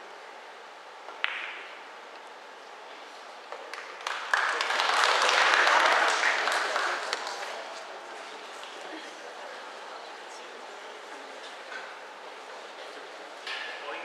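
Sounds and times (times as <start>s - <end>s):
pool cue striking balls: 1.1s - 1.9s
audience applause: 3.7s - 9.2s.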